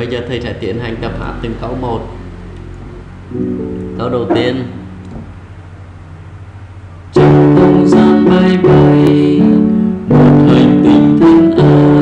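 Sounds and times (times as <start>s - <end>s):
electronic keyboard piano chords: 0.0s - 12.0s
low hum: 0.5s - 7.2s.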